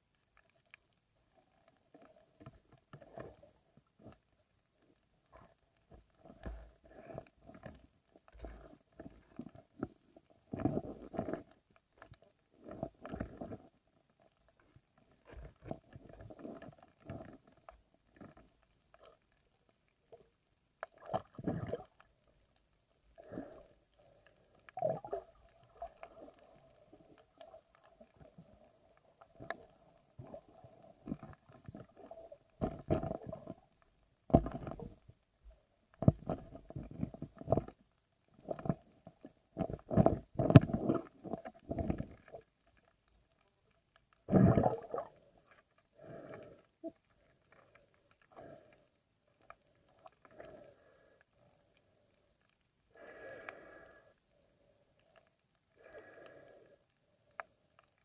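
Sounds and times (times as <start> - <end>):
faint steady hum: 0.0 - 58.0
dull underwater knocks and swishes: 24.2 - 42.8, 44.1 - 45.8.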